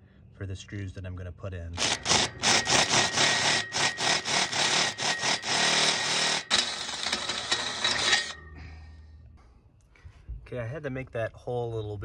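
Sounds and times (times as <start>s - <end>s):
cordless drill grinding through metal: 1.8s - 8.5s.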